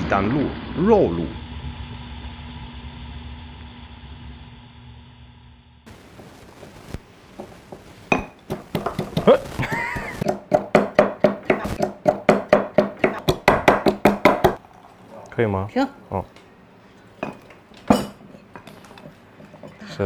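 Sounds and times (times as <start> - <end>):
pestle pounding in mortar: 7.7 - 14.6.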